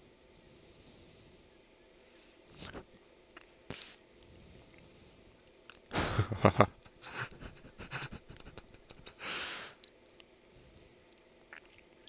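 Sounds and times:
long exhale through nose: 0:00.3 - 0:01.5, 0:09.2 - 0:09.8
man's stifled laugh: 0:05.9 - 0:09.4.

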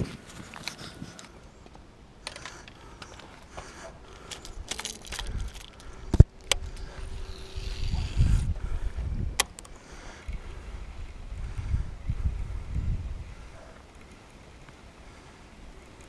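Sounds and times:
wind rumble on microphone: 0:04.5 - 0:09.4, 0:10.2 - 0:13.8.

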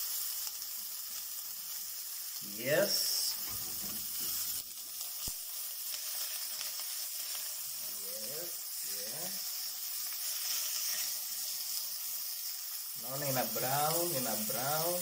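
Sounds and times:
burger patty sizzling in oil: 0:00.0 - 0:15.0.

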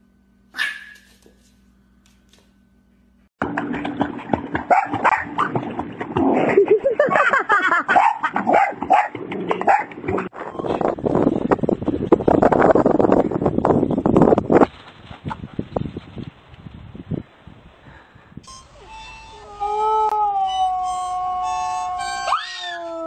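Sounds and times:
dog barking and whimpering: 0:00.6 - 0:01.2, 0:07.9 - 0:09.9.

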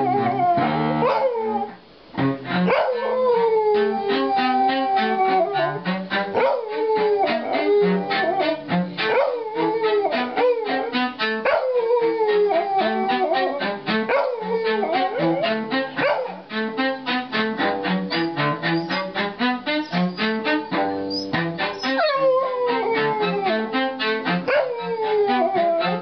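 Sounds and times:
small dog howling: 0:00.0 - 0:01.8, 0:02.6 - 0:16.5, 0:21.1 - 0:26.0
cello playing low bowed notes: 0:00.0 - 0:26.0.

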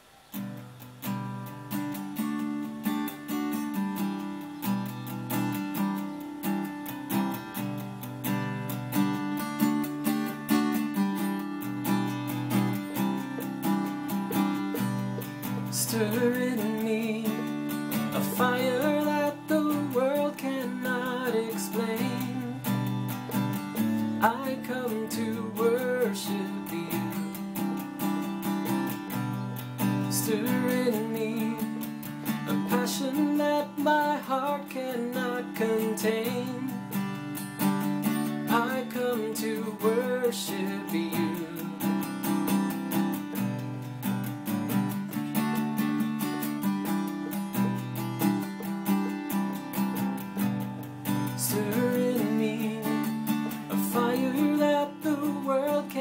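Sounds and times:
acoustic guitar strumming: 0:00.0 - 0:56.0
person singing: 0:12.6 - 0:27.4, 0:30.0 - 0:37.0, 0:38.5 - 0:42.2, 0:51.2 - 0:56.0.

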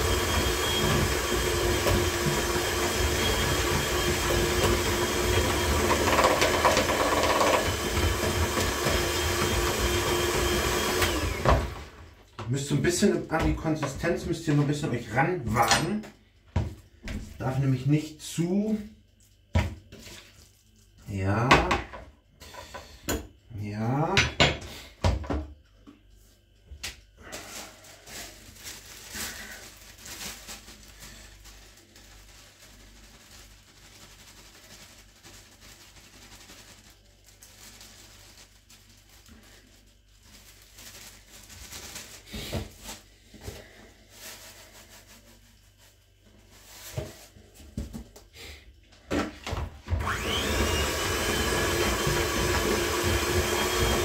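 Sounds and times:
electric hand mixer whining: 0:00.0 - 0:12.1, 0:49.9 - 0:54.0
plastic bag crinkling: 0:27.2 - 0:47.4.

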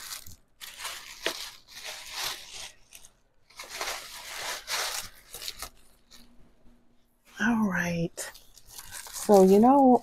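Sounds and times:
tissue paper rustling: 0:00.0 - 0:06.4, 0:08.2 - 0:10.0.

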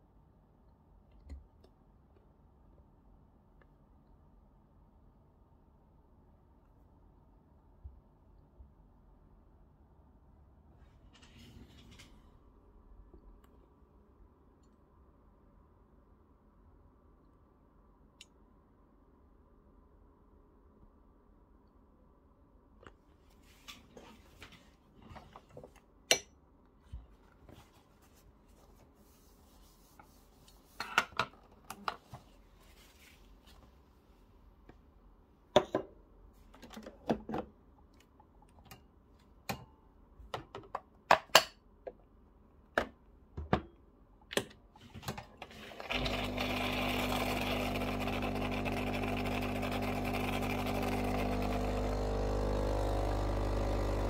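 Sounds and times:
coffee grinder grinding beans: 0:45.4 - 0:54.0.

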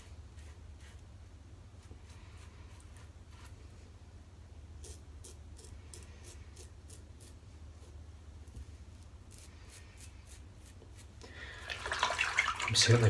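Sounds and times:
razor scraping stubble: 0:04.8 - 0:08.0, 0:09.3 - 0:11.2.

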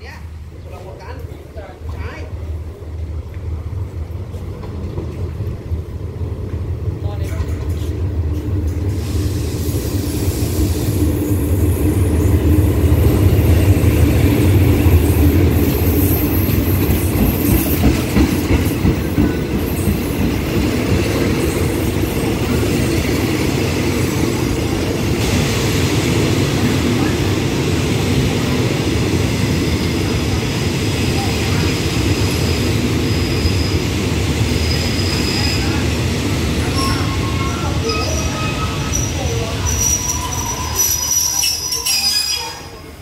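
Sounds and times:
wheels clacking over rail joints: 0:16.4 - 0:24.0.

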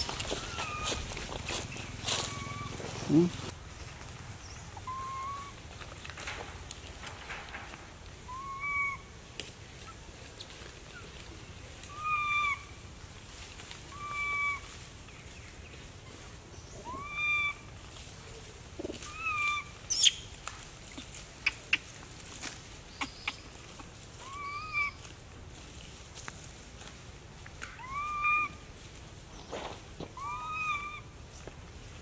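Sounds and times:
animal call rising: 0:02.1 - 0:03.5, 0:04.8 - 0:05.6, 0:08.3 - 0:09.1.

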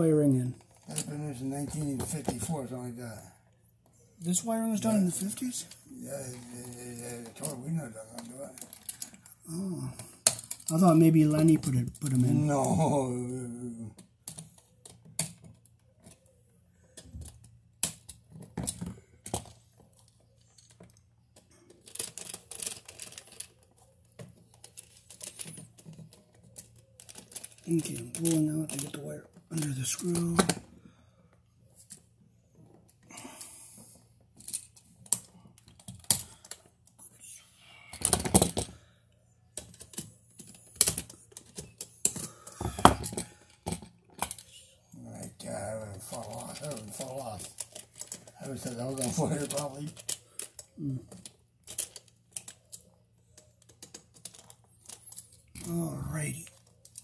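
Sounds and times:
outlet and wires clicking: 0:45.2 - 0:55.8.

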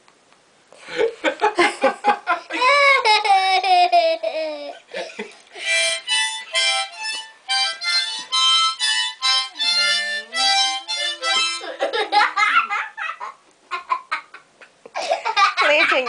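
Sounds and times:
harmonica chords: 0:05.6 - 0:12.2.

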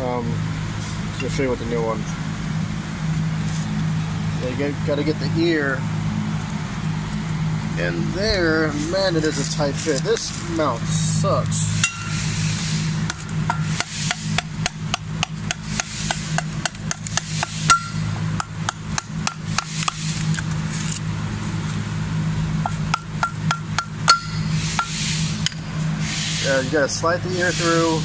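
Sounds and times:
low hum: 0:10.4 - 0:26.4
hammer striking metal: 0:11.8 - 0:12.3, 0:13.1 - 0:20.1, 0:22.6 - 0:25.6.

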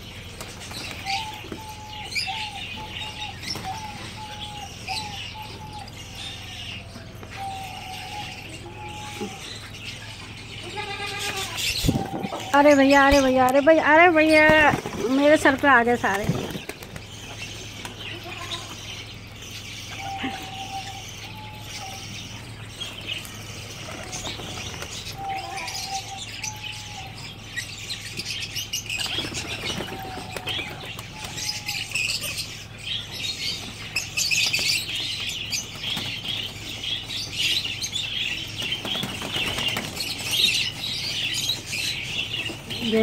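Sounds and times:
bird chirps: 0:00.0 - 0:43.0
pigeon wings flapping: 0:14.4 - 0:17.1.

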